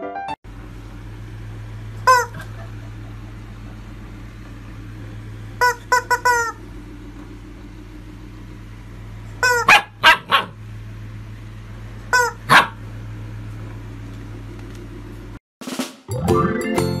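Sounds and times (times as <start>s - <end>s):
puppy barking: 2.0s - 2.7s, 9.4s - 10.6s, 12.1s - 12.8s
rubber chicken toy squeaking: 2.1s - 2.3s, 5.6s - 6.6s, 9.4s - 9.8s, 12.1s - 12.6s.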